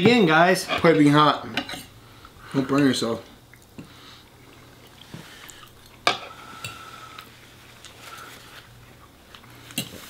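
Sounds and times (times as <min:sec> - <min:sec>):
forks scraping on plates: 0:00.6 - 0:01.9.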